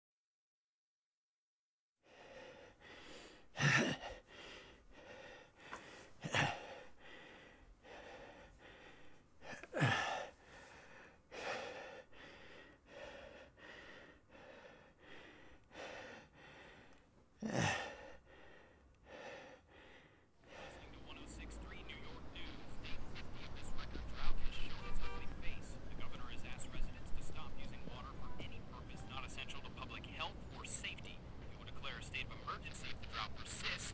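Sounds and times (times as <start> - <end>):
man breathing laboriously: 2.0 - 21.2
man gasping loudly: 2.1 - 20.9.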